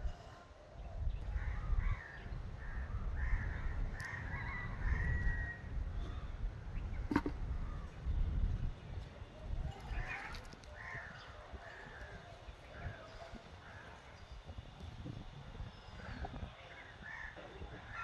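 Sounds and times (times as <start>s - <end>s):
wind rumble on microphone: 0.0s - 18.0s
crow-like caws: 1.3s - 6.3s, 9.9s - 14.2s, 16.0s - 18.0s.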